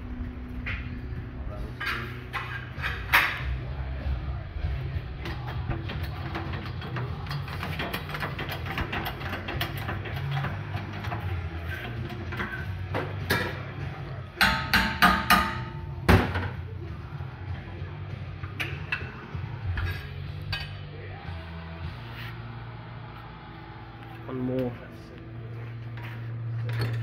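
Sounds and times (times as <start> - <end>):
background music: 0.0 - 27.0
metal-on-metal strikes: 14.4 - 16.6.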